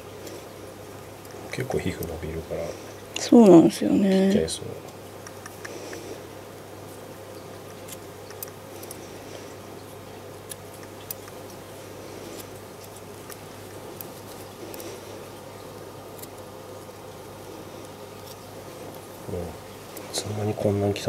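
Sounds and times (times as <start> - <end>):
steady low hum: 0.0 - 21.0
scissors snipping fur: 4.9 - 6.0, 7.6 - 9.0, 10.4 - 11.6, 16.0 - 16.9.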